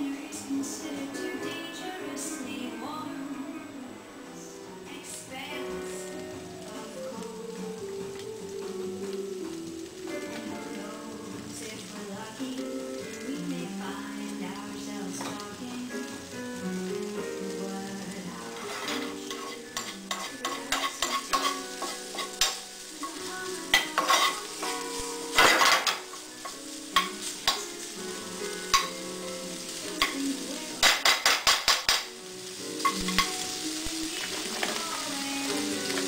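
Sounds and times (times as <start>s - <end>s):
sausage sizzling in a frying pan: 4.8s - 36.0s
spoon scraping a pan: 18.5s - 27.7s, 32.8s - 33.5s.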